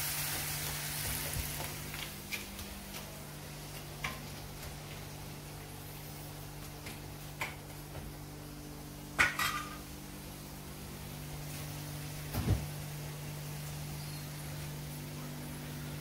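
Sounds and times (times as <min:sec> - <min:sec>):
steady low hum: 0:00.5 - 0:16.0
metal kitchenware clattering on pot: 0:09.2 - 0:09.8.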